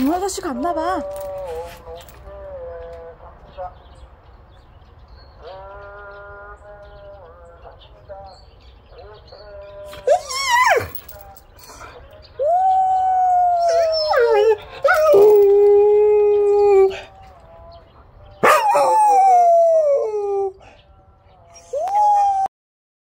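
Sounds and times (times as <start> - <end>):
dog howling: 9.8 - 11.1, 12.4 - 17.2, 18.4 - 20.7.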